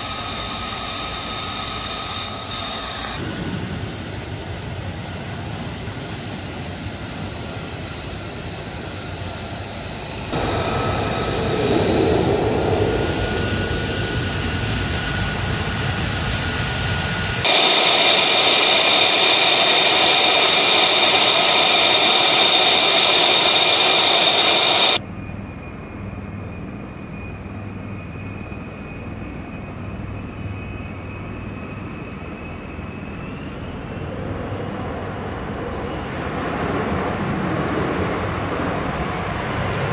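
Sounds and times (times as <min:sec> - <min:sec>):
jet engine idling whine: 0:00.0 - 0:39.9.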